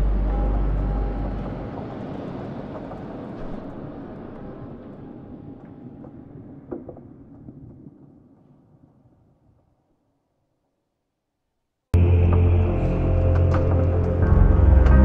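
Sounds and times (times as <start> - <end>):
heavy low rumble: 0.0 - 6.7, 12.0 - 15.0.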